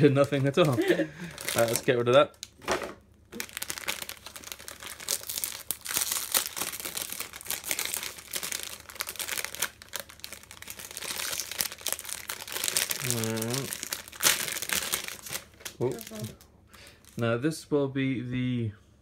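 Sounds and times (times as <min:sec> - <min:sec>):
plastic bag crinkling: 0:00.0 - 0:02.6, 0:03.3 - 0:17.2.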